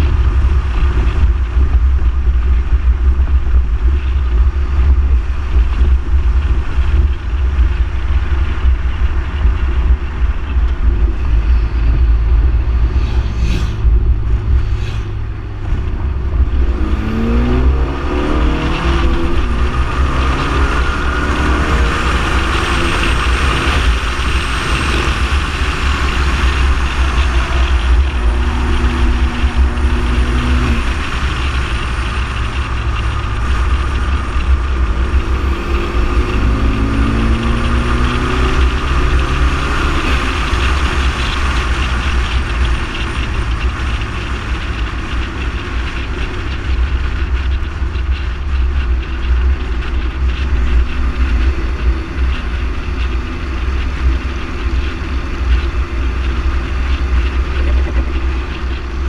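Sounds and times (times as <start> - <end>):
car engine revving: 0.0 - 59.0
road roar: 0.0 - 59.0
wind rumble on microphone: 0.0 - 59.0
tyre noise hissing: 11.7 - 15.6.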